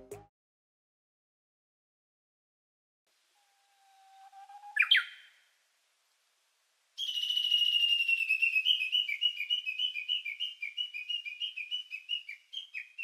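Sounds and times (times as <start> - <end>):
whistle-like trill: 7.0 - 9.0.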